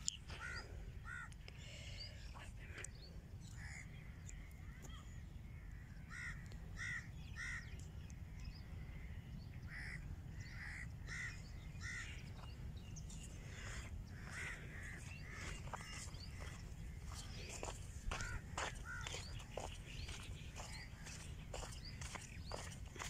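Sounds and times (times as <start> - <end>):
steady low rumble: 0.0 - 23.0
crows cawing: 0.3 - 1.4, 3.5 - 7.8, 8.9 - 12.5, 13.5 - 22.7.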